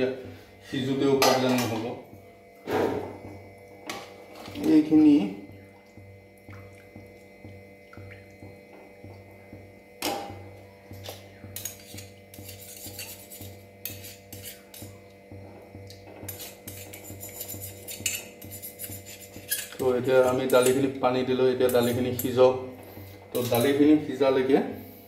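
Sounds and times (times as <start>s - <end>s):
ladle scraping steel pan: 11.6s - 14.8s, 16.2s - 20.9s, 21.6s - 22.5s.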